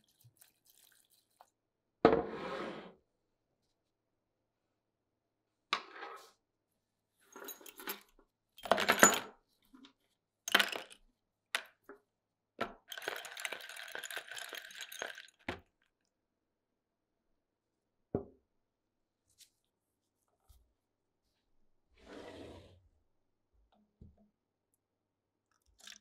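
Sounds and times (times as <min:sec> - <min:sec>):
liquid pouring: 0:25.5 - 0:26.0.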